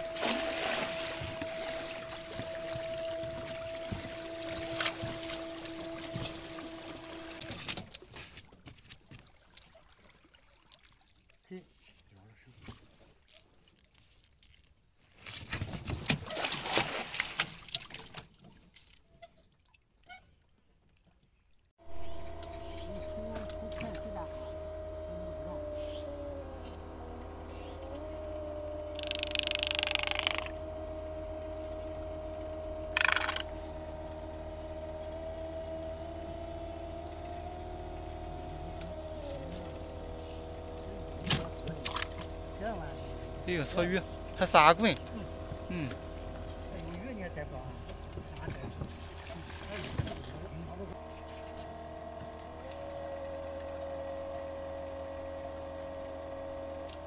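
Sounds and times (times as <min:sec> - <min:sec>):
motor hum: 0:00.0 - 0:08.0, 0:21.8 - 0:57.0
water splashing: 0:00.0 - 0:11.9, 0:16.0 - 0:20.0, 0:21.8 - 0:56.6.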